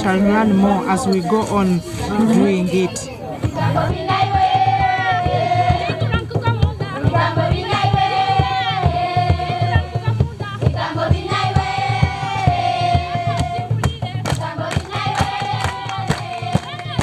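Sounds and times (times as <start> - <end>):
hand drum beat: 2.1 - 17.0
children singing together: 3.5 - 10.1, 10.7 - 17.0.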